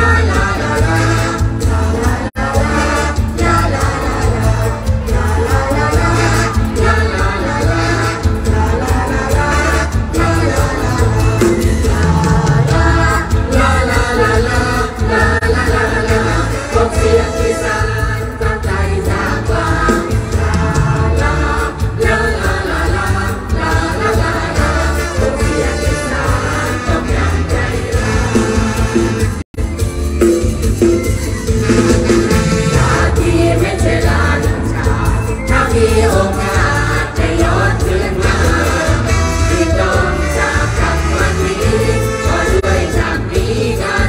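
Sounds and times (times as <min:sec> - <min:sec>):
live band over loud speakers: 0:00.0 - 0:44.0.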